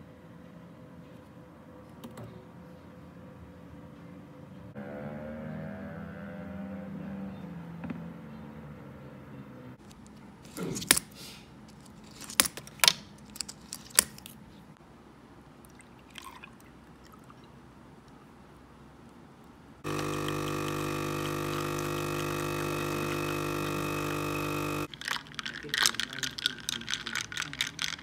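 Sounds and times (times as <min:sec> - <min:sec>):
electric appliance humming: 0:19.8 - 0:24.9.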